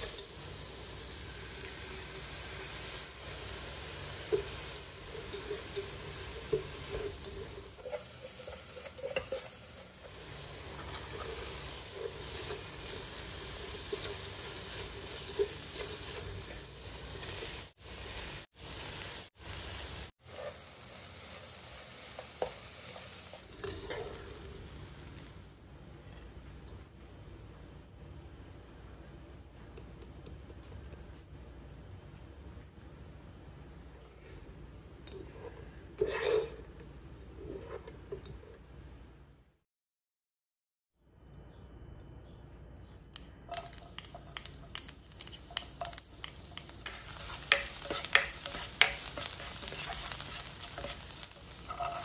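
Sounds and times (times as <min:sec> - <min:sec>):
food sizzling in pan: 0:00.0 - 0:25.6, 0:43.6 - 0:52.0
spatula scraping and knocking pan: 0:04.3 - 0:17.8, 0:22.0 - 0:24.4, 0:43.5 - 0:52.0.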